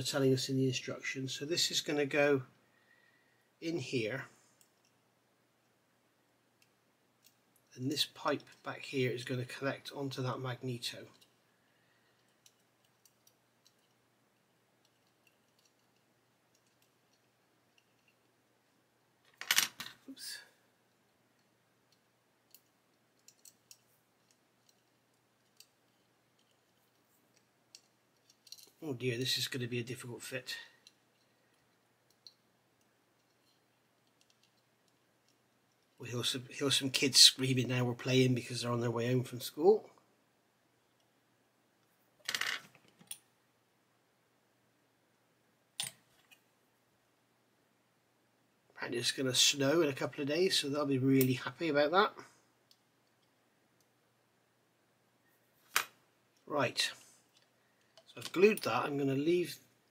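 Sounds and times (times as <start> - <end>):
light clicks of tweezers and plastic: 12.1 - 18.3, 20.9 - 28.8, 30.7 - 36.0
hands handling plastic parts: 20.9 - 28.8.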